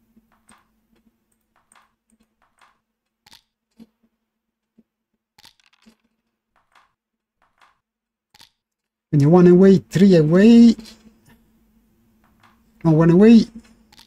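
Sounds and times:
faint steady hum: 9.2 - 14.0.

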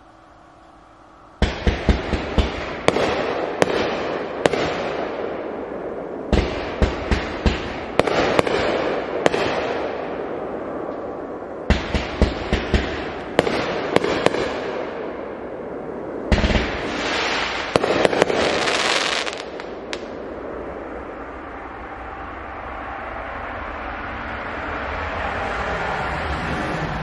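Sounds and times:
background noise: 0.0 - 27.0
firework crackling: 0.0 - 27.0
firework bang: 16.3 - 20.2.

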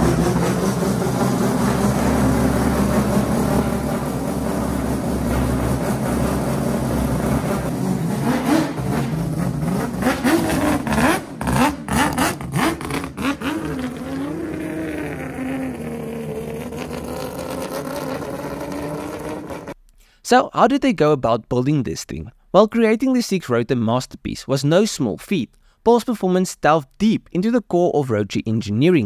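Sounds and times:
rotary engine revving: 0.0 - 19.8.

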